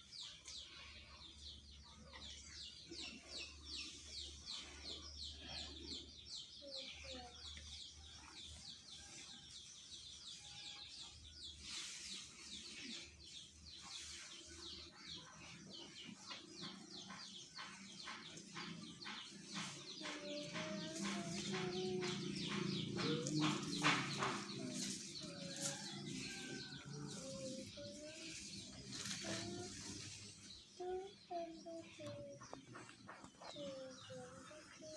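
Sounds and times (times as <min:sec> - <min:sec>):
chickens clucking: 0:12.1 - 0:34.9
birds chirping: 0:12.5 - 0:34.9.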